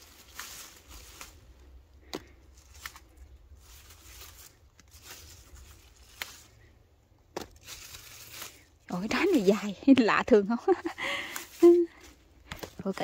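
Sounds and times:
rustling of vines and leaves: 0:00.0 - 0:13.0.

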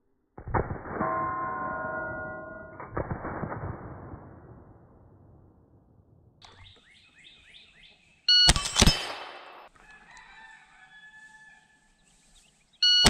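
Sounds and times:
rifle shots: 0:00.4 - 0:06.4, 0:08.4 - 0:09.7
steel targets ringing: 0:00.8 - 0:03.0
bird calling: 0:06.4 - 0:08.8, 0:12.8 - 0:13.0
shot timer beep: 0:08.3 - 0:09.6.

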